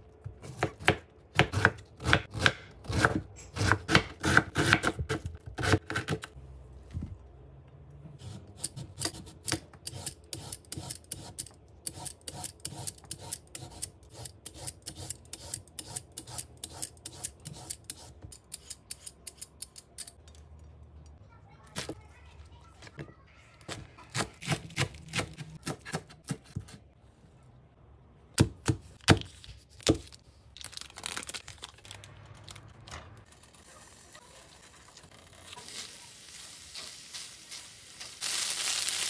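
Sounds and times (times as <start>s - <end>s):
peeler scraping carrot: 8.2s - 20.2s.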